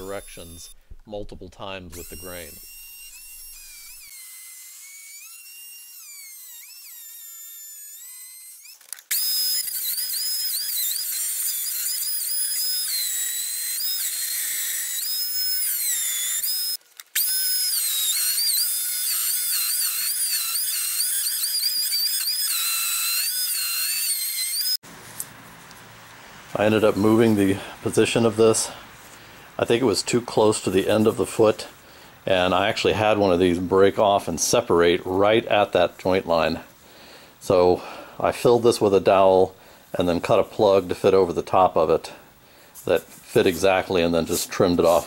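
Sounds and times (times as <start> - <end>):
router motor whining: 0.0 - 0.8, 1.9 - 33.7.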